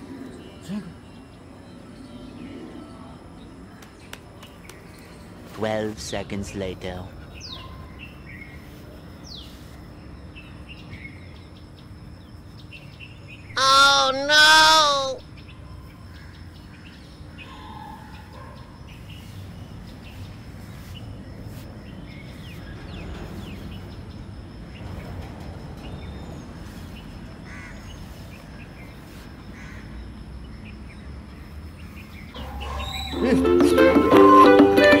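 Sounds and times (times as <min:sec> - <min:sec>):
low background noise: 0:00.0 - 0:35.0
faint bird chirps: 0:31.4 - 0:33.2.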